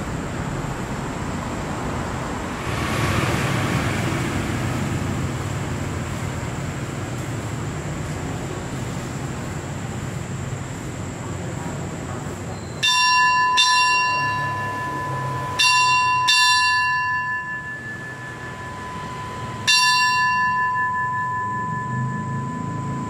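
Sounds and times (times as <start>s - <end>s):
brass hand bell ringing: 12.8s - 23.0s.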